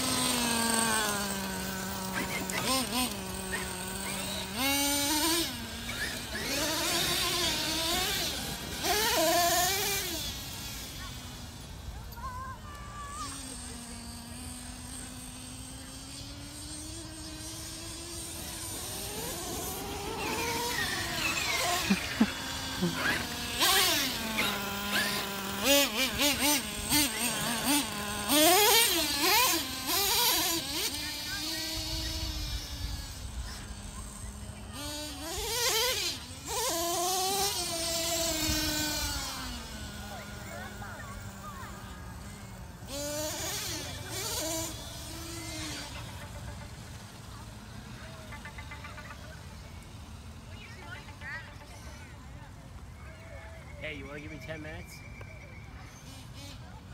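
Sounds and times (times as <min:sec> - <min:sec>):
toy truck motor whining: 0:00.0 - 0:56.9.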